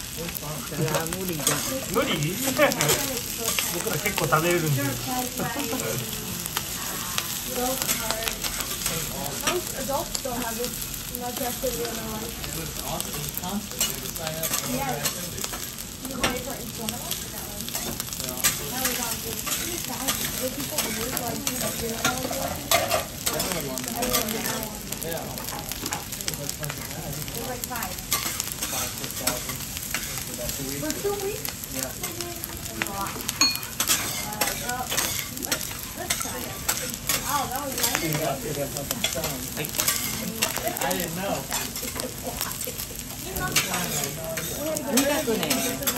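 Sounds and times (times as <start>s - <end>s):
egg sizzling on a griddle: 0.0s - 45.9s
metal spatula scraping a griddle: 0.6s - 5.4s, 13.0s - 16.4s, 17.1s - 24.6s, 28.0s - 30.3s, 33.1s - 45.9s
metal spatulas scraping griddle: 33.7s - 38.2s, 39.0s - 40.9s, 43.5s - 45.9s.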